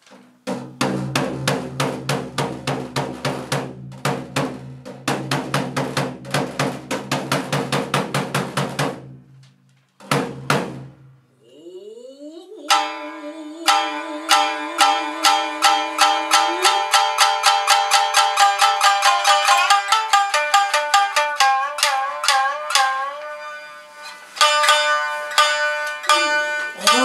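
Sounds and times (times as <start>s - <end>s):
drums beating fast: 0.5s - 9.3s, 10.0s - 11.0s, 13.6s - 23.0s.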